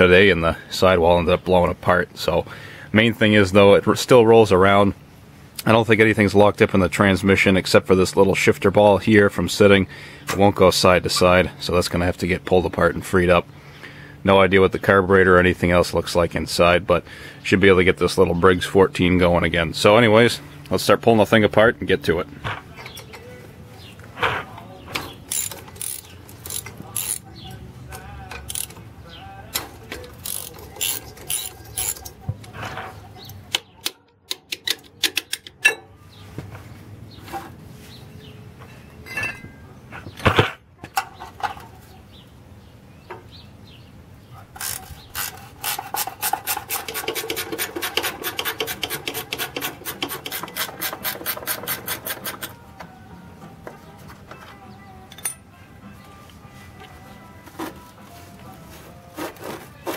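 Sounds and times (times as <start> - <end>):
rapid ratchet wrench clicks: 25.3 - 27.2, 28.5 - 28.8, 30.2 - 32.0.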